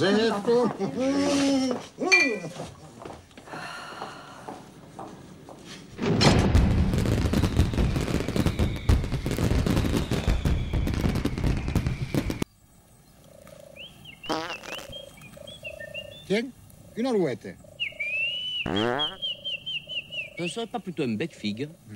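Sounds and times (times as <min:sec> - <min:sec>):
faint bird-like chirps: 0:12.4 - 0:17.0, 0:17.6 - 0:21.9.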